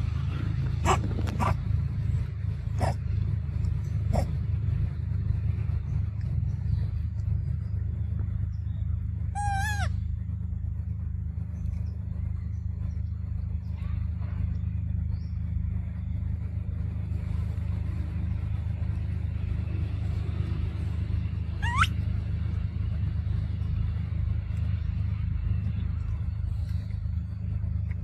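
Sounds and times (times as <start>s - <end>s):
low rumble: 0.0s - 28.0s
high-pitched monkey call: 0.8s - 1.6s, 9.2s - 10.0s, 21.5s - 22.1s.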